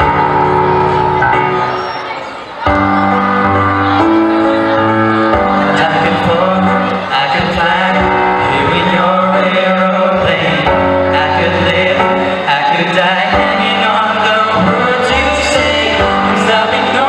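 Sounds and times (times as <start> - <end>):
musical accompaniment: 0.0 - 17.0
male vocal trio singing pop: 5.7 - 17.0.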